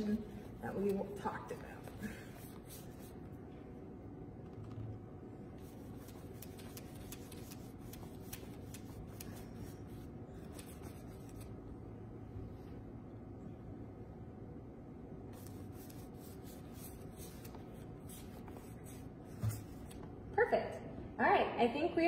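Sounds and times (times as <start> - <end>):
low room hum: 0.0 - 22.0
paintbrush scratching on canvas: 1.8 - 3.2, 5.6 - 11.5, 15.4 - 20.0.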